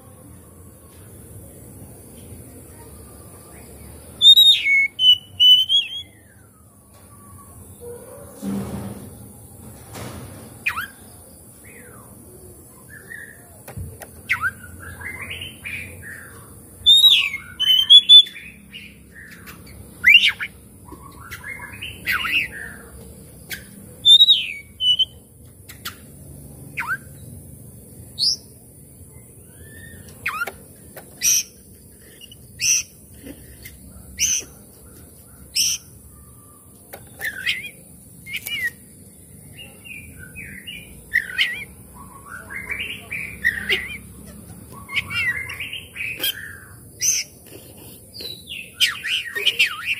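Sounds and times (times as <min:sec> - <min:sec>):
bird singing whistled phrases: 0:04.2 - 0:06.3, 0:16.8 - 0:18.4, 0:24.1 - 0:25.2, 0:37.2 - 0:38.8.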